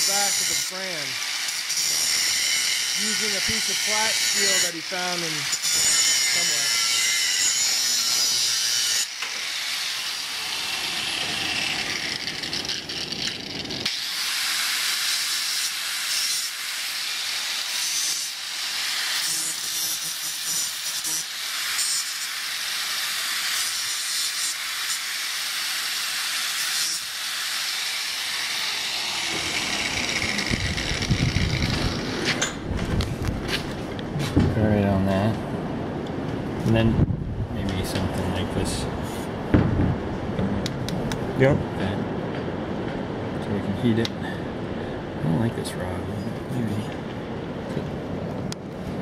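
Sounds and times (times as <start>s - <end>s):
angle grinder grinding steel: 0.0s - 32.6s
low bumps and rumbling: 29.3s - 43.7s.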